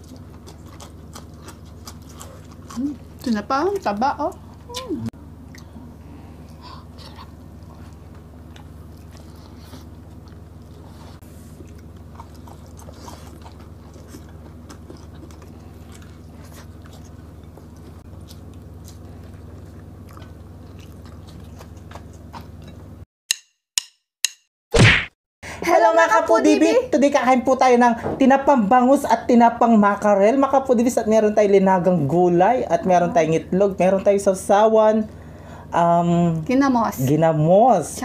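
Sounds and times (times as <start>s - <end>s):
people chewing and mouth sounds: 0.0s - 23.0s
steady low hum: 0.0s - 23.0s, 25.4s - 38.0s.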